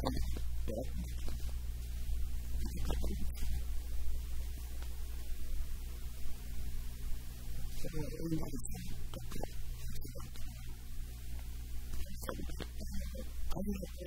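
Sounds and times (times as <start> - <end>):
steady low hum: 0.0 - 14.0
man murmuring: 12.0 - 14.0.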